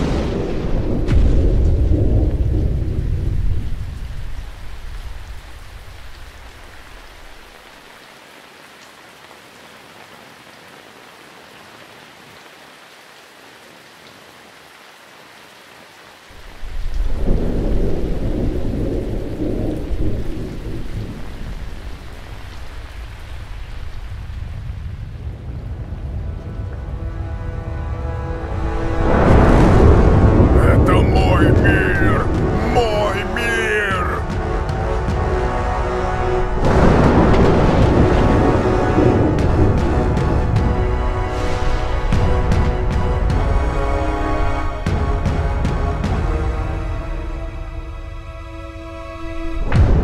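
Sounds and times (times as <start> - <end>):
low rolls of thunder: 0.0 - 7.1, 16.4 - 27.8, 28.4 - 31.6, 36.5 - 42.7
heavy rain: 0.0 - 50.0.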